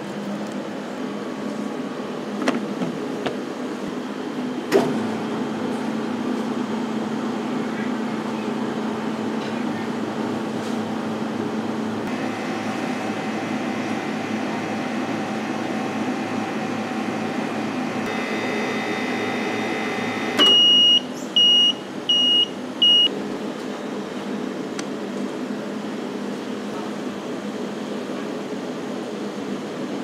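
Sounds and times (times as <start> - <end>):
ice cream machine motor hum: 0.0 - 26.9
high electronic timer beeps: 18.1 - 23.1.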